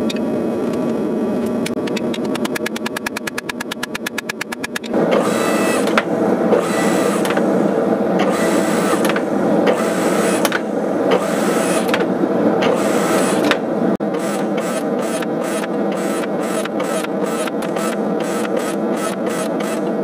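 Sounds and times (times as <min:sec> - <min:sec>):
sharp click: 0:01.6 - 0:05.0.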